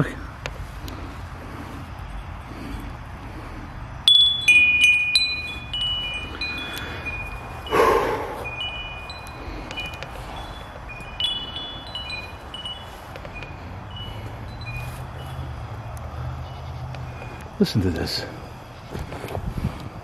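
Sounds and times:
metal wind chime ringing: 0:04.0 - 0:15.8.

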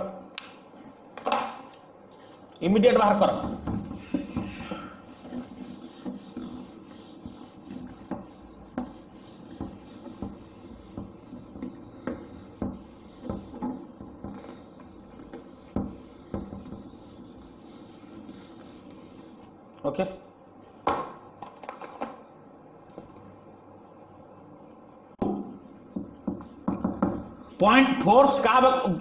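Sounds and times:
eraser rubbing on whiteboard: 0:03.4 - 0:19.5.

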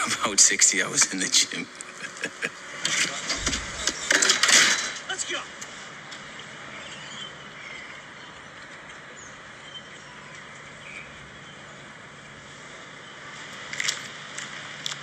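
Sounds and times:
outdoor ambient hiss: 0:00.0 - 0:15.0
faint bird chirps: 0:06.6 - 0:12.4.

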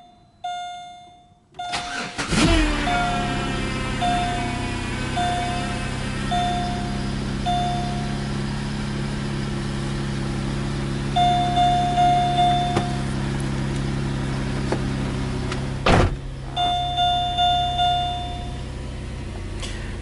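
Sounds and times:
dashboard warning chime: 0:00.0 - 0:08.8, 0:11.0 - 0:13.3, 0:16.5 - 0:19.2
car engine idling: 0:01.6 - 0:20.0
thump: 0:15.8 - 0:16.3.

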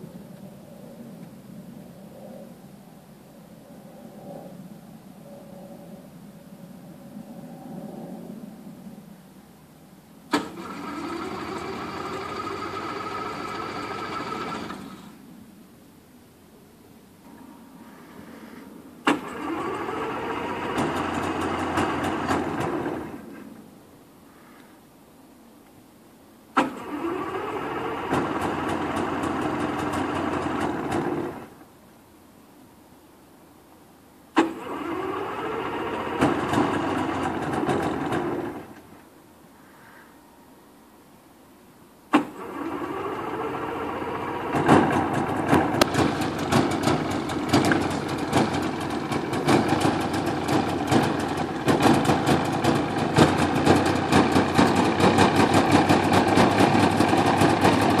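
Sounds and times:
engine starter click: 0:10.3 - 0:15.1, 0:19.0 - 0:23.2, 0:26.6 - 0:31.6, 0:34.4 - 0:38.9, 0:42.1 - 0:58.0
starter motor whirring: 0:10.3 - 0:15.2, 0:19.1 - 0:23.2, 0:26.6 - 0:31.5, 0:34.4 - 0:38.8, 0:42.2 - 0:58.0
engine pops: 0:35.9 - 0:38.7, 0:44.2 - 0:58.0.

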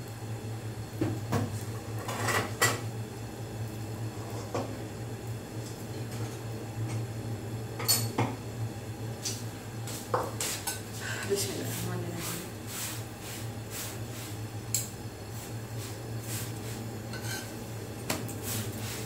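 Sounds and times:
steady low hum: 0:00.0 - 0:19.0
utensils and dishes clinking: 0:07.8 - 0:08.2, 0:17.1 - 0:17.6.

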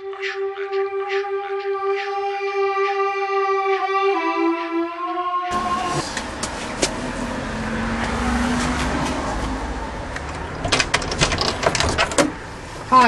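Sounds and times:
handheld camera rumble: 0:08.0 - 0:12.9
door knocks and clicks opening: 0:10.2 - 0:12.4.

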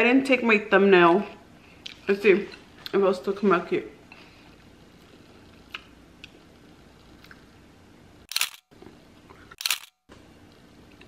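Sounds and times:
camera shutter firing: 0:08.3 - 0:08.6, 0:09.6 - 0:10.0.

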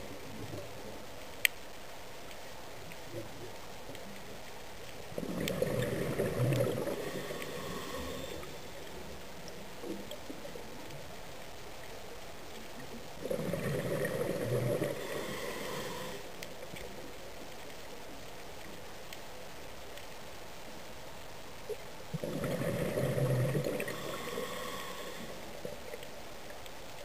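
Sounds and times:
steady hiss: 0:00.0 - 0:27.0
underwater air bubbles gurgling: 0:05.1 - 0:11.0, 0:12.6 - 0:17.2, 0:22.1 - 0:26.1.

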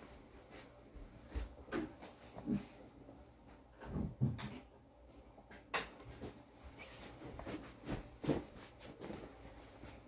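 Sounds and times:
pillowcase rustling and flapping: 0:06.2 - 0:10.0.

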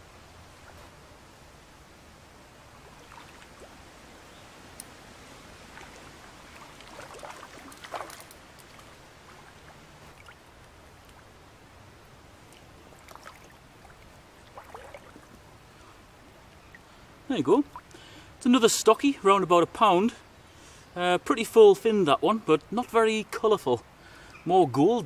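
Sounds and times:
river water flowing: 0:00.0 - 0:21.2
fish splashing at surface: 0:05.7 - 0:10.4, 0:14.4 - 0:15.3.

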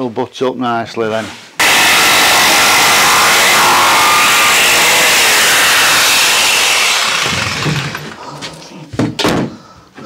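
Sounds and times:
electric planer cutting wood: 0:01.6 - 0:08.2.

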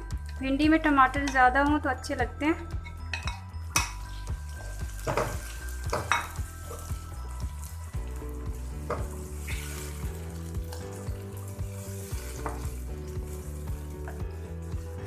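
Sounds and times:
vegetables sizzling in hot oil: 0:04.0 - 0:15.0
spatula scraping and knocking pan: 0:12.0 - 0:13.4.

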